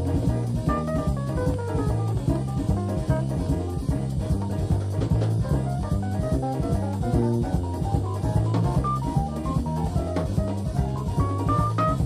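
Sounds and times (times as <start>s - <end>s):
drum kit: 0.0s - 12.0s
electric bass: 0.0s - 12.0s.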